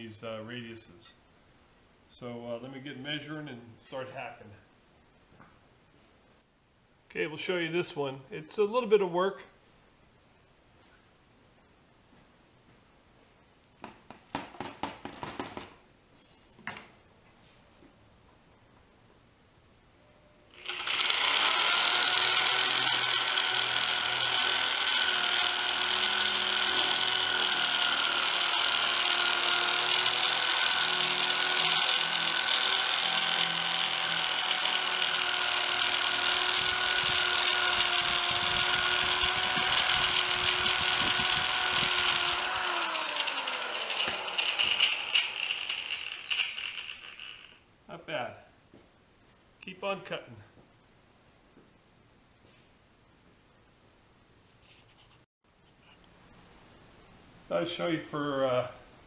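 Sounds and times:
electric metal shear cutting: 20.5 - 47.6
motor winding down: 20.5 - 47.6.

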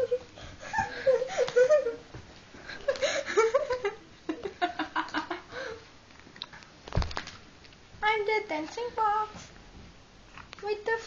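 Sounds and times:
people laughing and giggling: 0.0 - 5.8.

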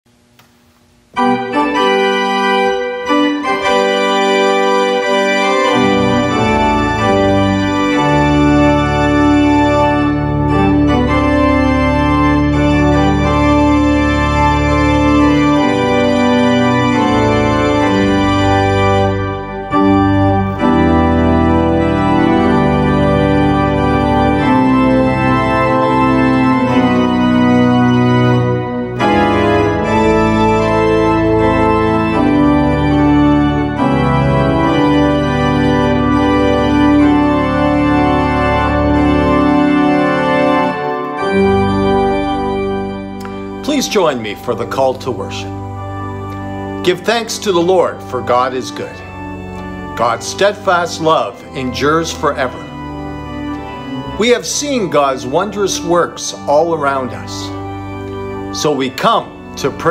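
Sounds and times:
organ chords: 0.1 - 59.9.

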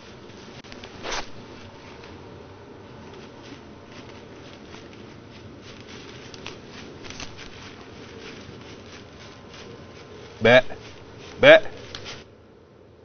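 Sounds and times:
steady hiss: 0.0 - 12.7
rustling in dry leaves: 3.2 - 12.3.

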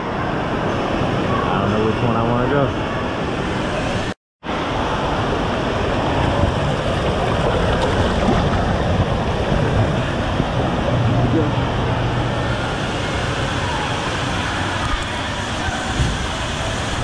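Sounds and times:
water rushing down water slide: 4.5 - 17.0.

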